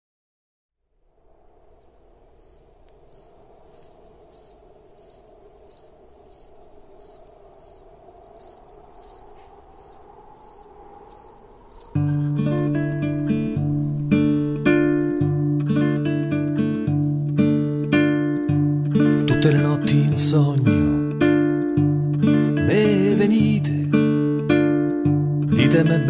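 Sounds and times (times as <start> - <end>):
crickets chirping: 0.9 - 22.9
acoustic guitar: 11.9 - 26.0.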